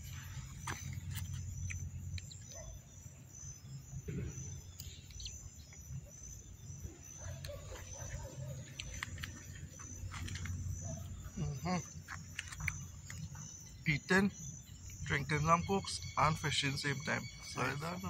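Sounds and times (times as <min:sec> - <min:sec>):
crickets chirping: 0:00.0 - 0:18.0.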